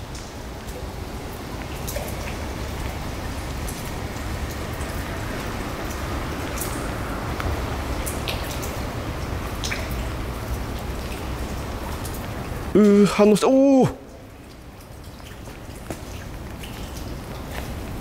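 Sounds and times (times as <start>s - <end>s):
rain falling on water: 0.0s - 18.0s
sharp drips: 0.0s - 18.0s.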